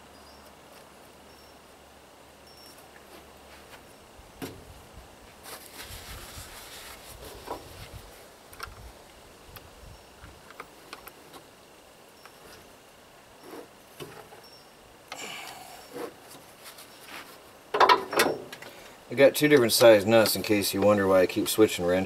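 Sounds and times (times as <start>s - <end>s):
handling rustle: 5.2s - 11.5s, 15.8s - 18.9s.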